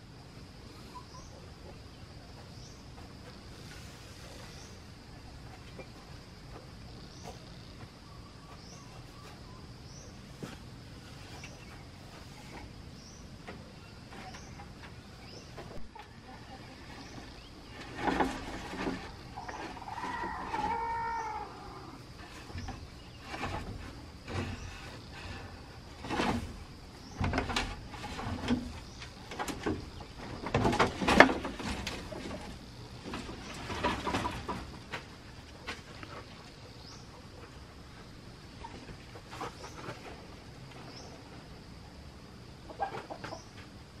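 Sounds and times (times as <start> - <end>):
rising insect chirp: 0.0 - 44.0
bamboo cage frame knocking and rattling: 17.2 - 21.2, 22.2 - 36.2.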